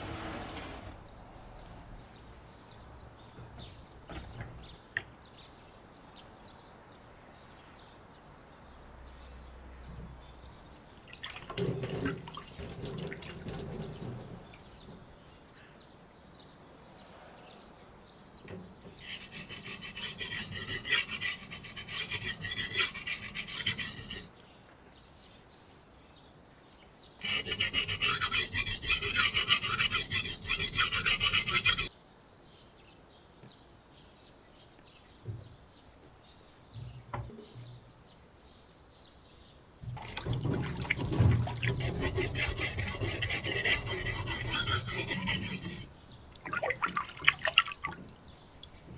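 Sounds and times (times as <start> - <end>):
dull rubbing: 11.4 - 15.1, 19.0 - 24.3, 27.2 - 31.9, 39.9 - 48.9
knife grinding on whetstone: 19.0 - 24.3, 27.2 - 31.9, 40.9 - 45.9.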